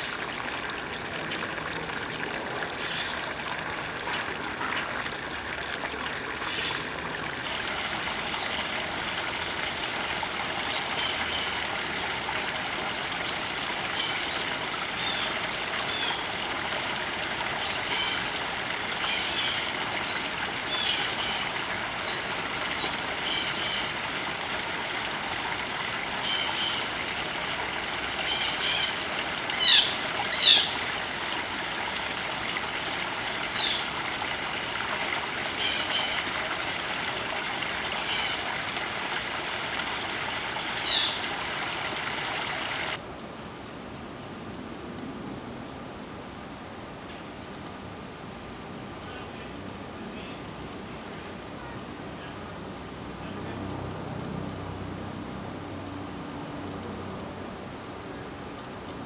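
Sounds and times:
stream trickling over rocks: 0.0s - 43.0s.

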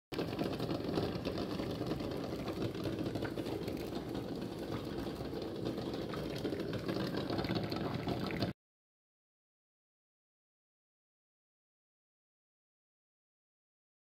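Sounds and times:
water boiling in a pot: 0.1s - 8.6s.

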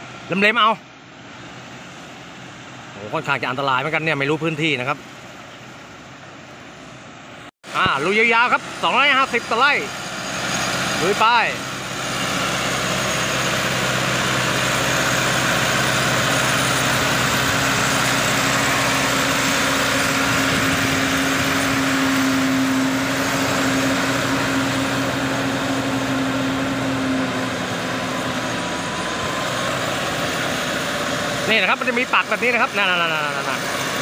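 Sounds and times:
tractor diesel engine under load: 7.7s - 34.0s.

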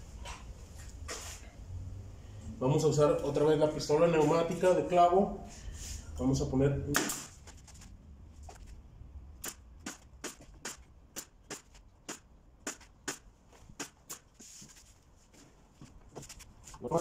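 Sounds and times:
nail gun firing: 7.0s - 7.3s, 9.4s - 14.3s.

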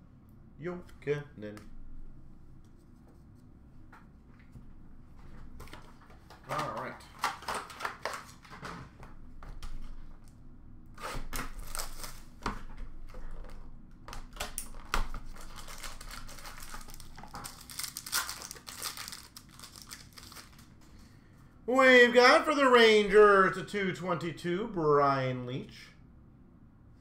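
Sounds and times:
packaging tearing: 11.0s - 12.4s, 14.3s - 20.7s
wrappers crinkling: 11.5s - 12.4s, 14.7s - 20.8s.

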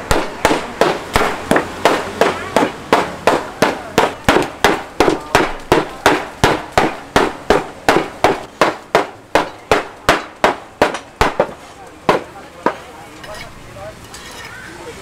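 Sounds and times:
wooden mallets pounding on wood block: 0.0s - 12.8s.

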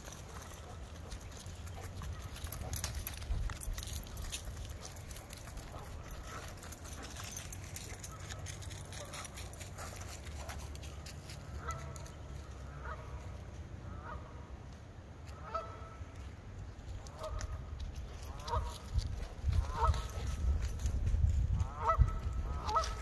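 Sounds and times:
geese honking: 11.5s - 14.5s, 15.3s - 16.0s, 21.6s - 23.0s.

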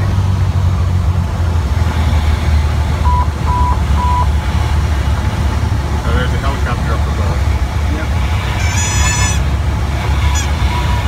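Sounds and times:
airplane engine and propeller drone: 0.0s - 11.0s
short electronic beeps: 3.0s - 4.3s.

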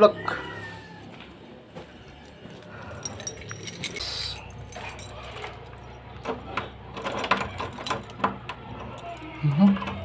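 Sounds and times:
keys jangling: 2.1s - 6.0s, 6.9s - 10.0s.

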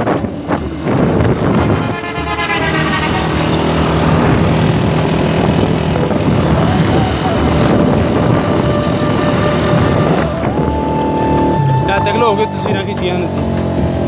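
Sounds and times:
motorcycle engine running: 0.0s - 14.0s
wind rushing over microphone: 0.0s - 14.0s
rising horn-like tone: 1.5s - 4.8s, 5.9s - 13.4s.

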